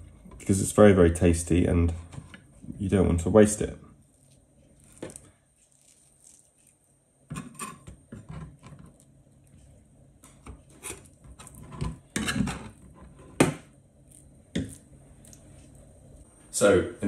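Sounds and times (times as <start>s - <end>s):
knife scraping chopping board: 10.7s - 13.4s.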